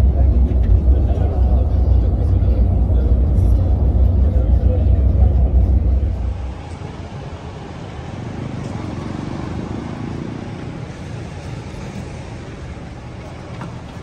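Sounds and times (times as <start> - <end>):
vehicle road noise: 0.0 - 14.0.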